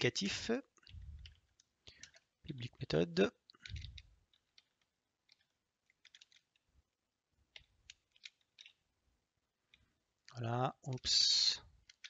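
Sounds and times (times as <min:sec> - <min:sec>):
computer keyboard typing: 0:00.8 - 0:02.8, 0:03.6 - 0:06.6, 0:07.5 - 0:08.8, 0:11.8 - 0:12.0.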